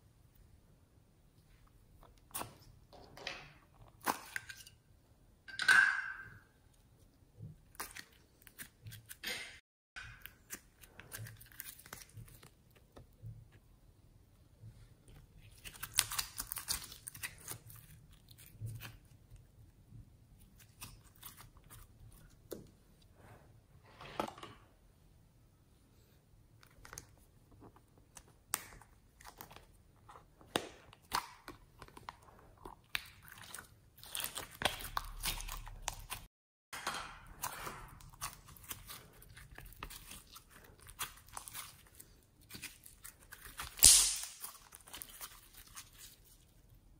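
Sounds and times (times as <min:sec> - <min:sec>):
bead slime crunching: 0:37.4 - 0:46.4
sticky slime crackles and pops: 0:38.0 - 0:46.2.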